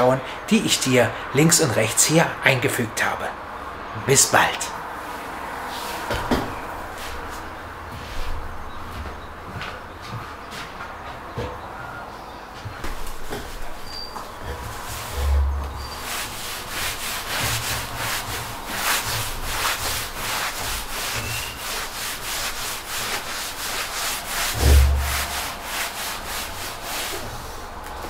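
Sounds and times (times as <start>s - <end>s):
cloth rubbing on wooden tabletop: 12.9s - 27.4s
low bump: 14.4s - 16.1s, 24.3s - 26.0s.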